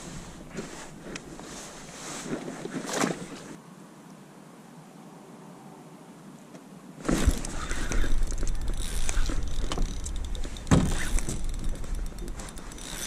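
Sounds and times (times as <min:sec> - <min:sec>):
fishing rod handling noise: 0:07.0 - 0:13.0
fishing reel rattling and clicking: 0:07.3 - 0:13.0.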